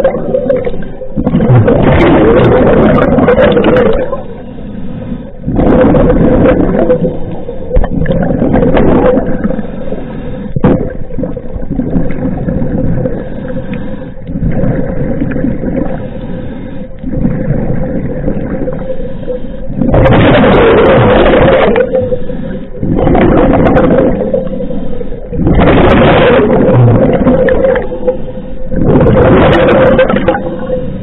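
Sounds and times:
exhaled bubbles gushing: 0:00.0 - 0:04.4, 0:05.4 - 0:13.5, 0:14.2 - 0:16.1, 0:17.0 - 0:31.0
faint steady hum: 0:00.0 - 0:31.0
diver breathing through regulator: 0:09.4 - 0:10.6, 0:13.0 - 0:14.6, 0:15.8 - 0:17.2, 0:18.8 - 0:19.9, 0:21.8 - 0:23.0.

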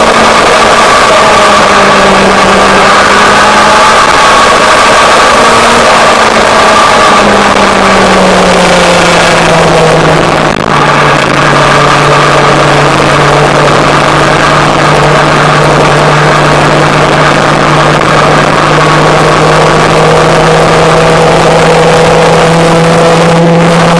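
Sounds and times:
motorcycle engine cruising: 0:00.0 - 0:23.9
wind rushing over microphone: 0:00.0 - 0:23.9.

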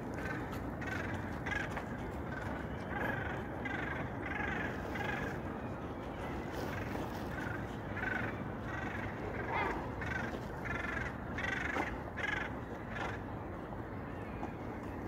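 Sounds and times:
gulls calling: 0:00.0 - 0:15.0.

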